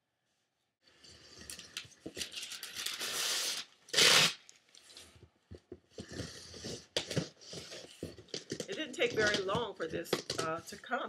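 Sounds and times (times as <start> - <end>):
paper and tape rustling: 1.4 - 10.8
tape tearing: 1.7 - 5.0
fingers tapping on cardboard: 5.5 - 10.6.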